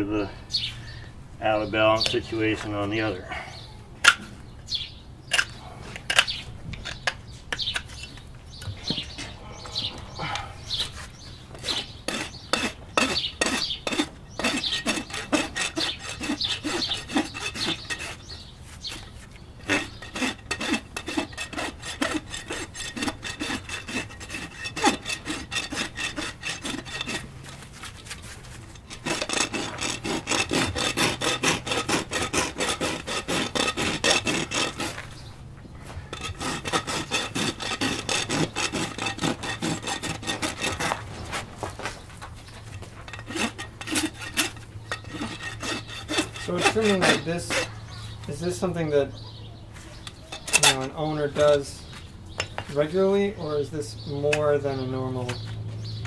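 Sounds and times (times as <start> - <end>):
hoof knife scraping: 4.0 - 9.3, 10.1 - 49.2, 49.8 - 55.5
rasp filing hoof: 10.8 - 48.7, 50.0 - 51.7.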